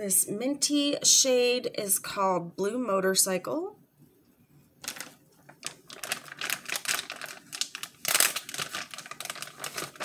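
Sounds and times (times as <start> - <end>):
crisp clicking and rustling: 4.8 - 10.0.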